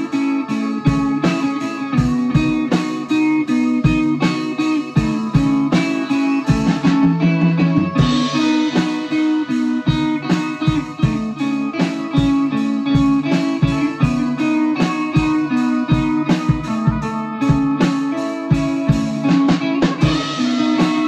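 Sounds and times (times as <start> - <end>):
drum strikes: 0.0 - 21.0
electric guitar: 0.0 - 21.0
trumpet: 0.0 - 21.0
cymbal crash: 20.0 - 21.0.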